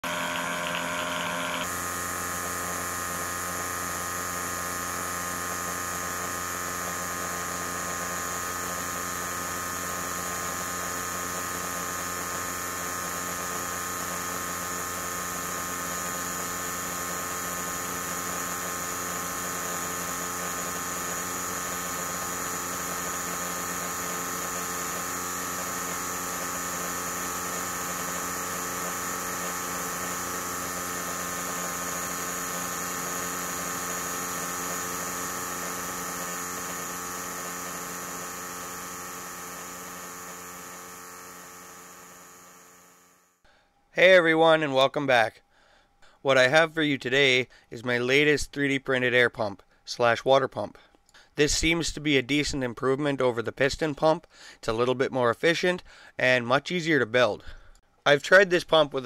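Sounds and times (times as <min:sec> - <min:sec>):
electric diaphragm air pump running: 0:00.0 - 0:43.6.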